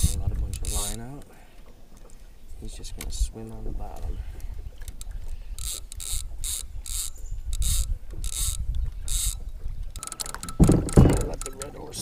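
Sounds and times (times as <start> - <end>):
fishing reel ratcheting: 0.0 - 1.0, 4.8 - 9.4, 10.0 - 11.8.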